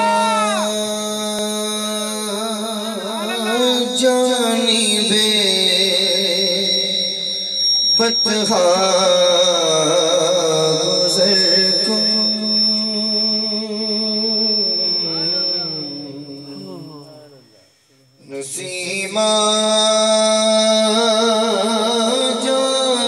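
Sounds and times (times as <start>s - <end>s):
man singing through loudspeakers: 0.0s - 17.6s, 18.2s - 23.0s
thin high whine: 4.9s - 18.2s.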